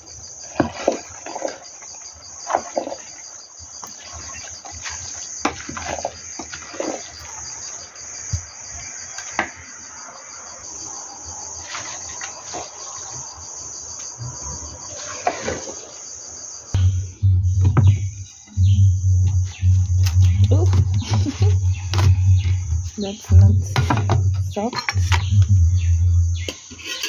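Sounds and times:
crickets chirping: 0.0 - 27.0
spoon scraping metal pot: 23.8 - 25.4, 26.4 - 27.0.

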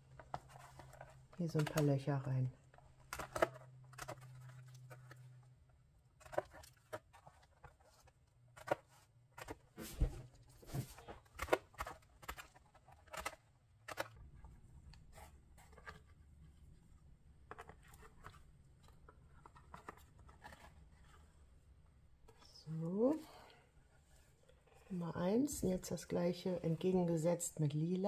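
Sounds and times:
paper rustling: 0.0 - 2.0, 6.2 - 16.9, 17.5 - 21.4.

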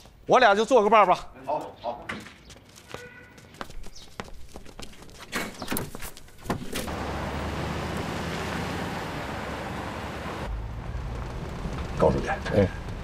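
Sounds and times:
jeep engine running: 6.9 - 13.0.

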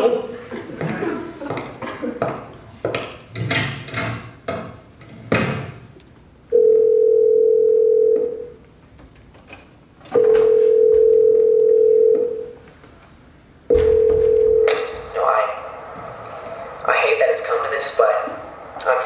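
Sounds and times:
telephone ringback tone: 6.5 - 8.6, 10.2 - 12.6, 13.7 - 15.1.

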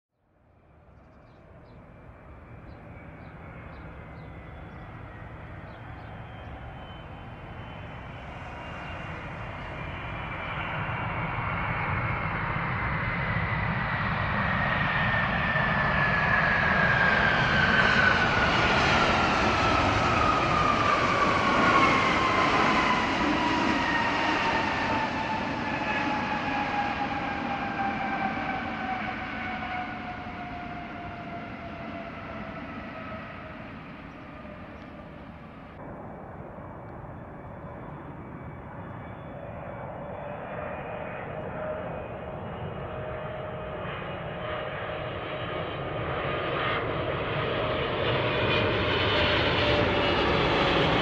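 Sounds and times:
jet engines rushing: 1.4 - 51.0
jet whine sliding down in pitch: 5.0 - 44.0.

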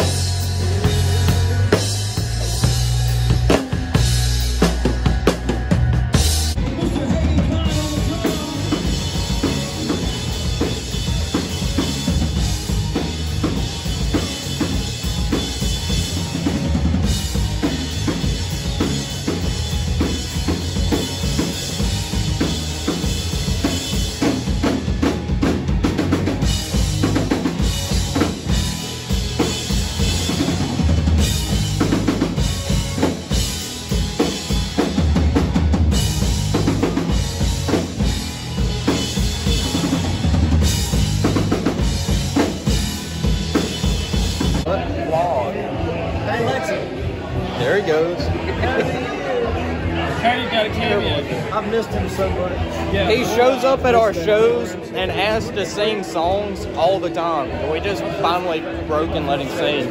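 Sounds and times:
live band playing: 0.0 - 59.9.

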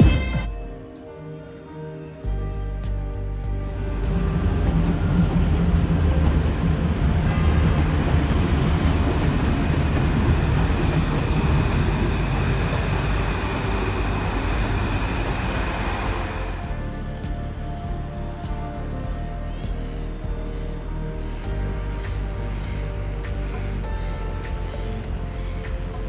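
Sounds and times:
train rumbling over steel viaduct: 3.1 - 26.0
high wheel squeal: 4.0 - 17.7.

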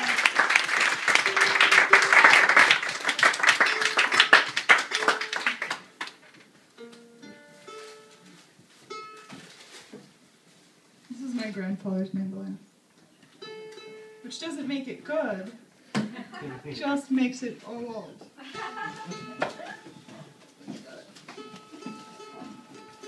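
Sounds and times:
audience applause: 0.0 - 6.2
plucked mandolin notes: 6.8 - 9.3, 13.4 - 14.4, 21.4 - 23.0.

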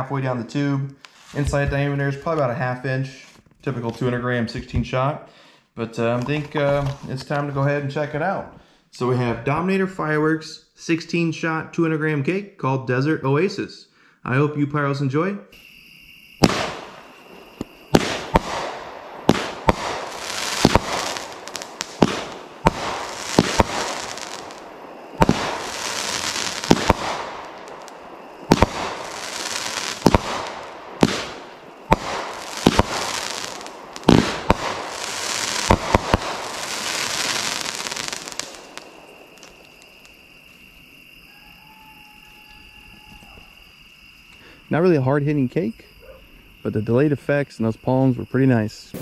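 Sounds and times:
crackling hiss: 0.0 - 12.4, 15.5 - 49.0
firework shots and bursts: 16.4 - 40.2.

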